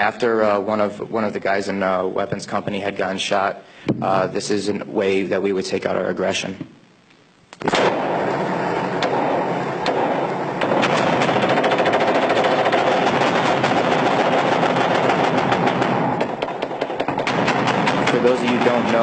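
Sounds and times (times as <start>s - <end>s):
automatic gunfire: 7.7s - 19.0s.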